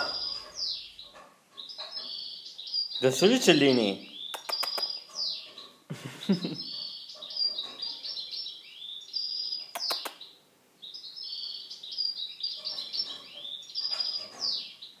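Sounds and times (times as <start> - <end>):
small birds chirping: 0.0 - 15.0
sharp clicks: 4.4 - 5.0, 9.8 - 10.2.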